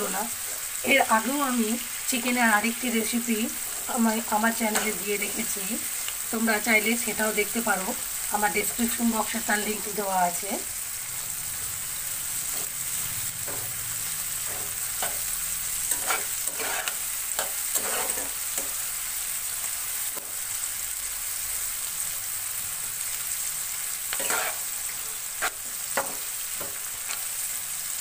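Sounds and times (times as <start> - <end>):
onions and tomato sizzling in oil: 0.0 - 28.0
spatula scraping a wok: 3.5 - 6.1, 11.3 - 20.4, 23.8 - 27.4.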